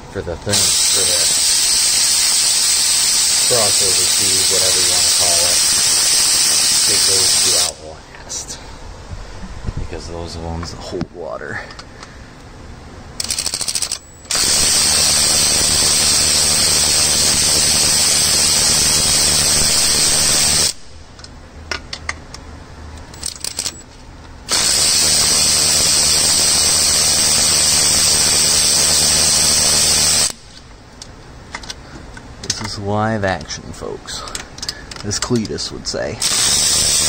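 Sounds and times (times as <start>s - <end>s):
power ratchet running: 0.5s - 7.8s, 13.2s - 20.9s, 23.1s - 23.8s, 24.5s - 30.6s, 36.2s - 37.0s.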